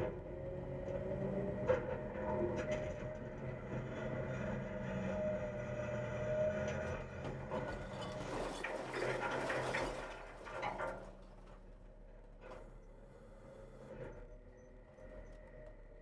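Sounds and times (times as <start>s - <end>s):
garbage truck engine and hydraulics: 0.0s - 16.0s
recycling clattering out of can: 7.9s - 11.3s.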